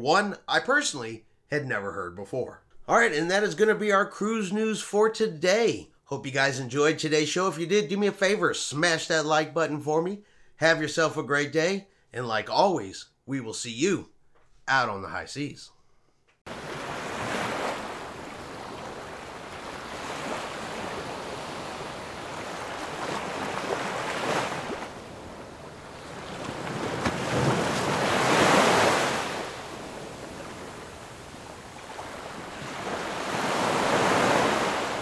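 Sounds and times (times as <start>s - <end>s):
waves breaking on beach: 16.5s - 35.0s.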